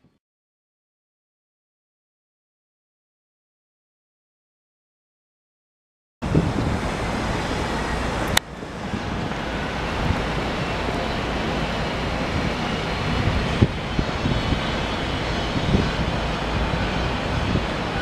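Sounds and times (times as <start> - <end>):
road traffic rumble: 6.2 - 18.0.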